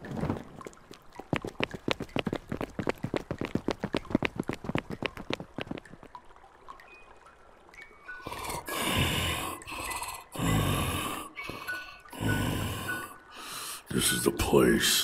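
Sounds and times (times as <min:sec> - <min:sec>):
water dripping: 0:00.0 - 0:14.9.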